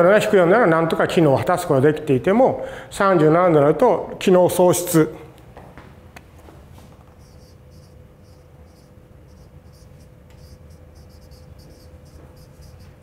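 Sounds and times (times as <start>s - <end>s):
marker scratching on whiteboard: 7.2s - 13.0s.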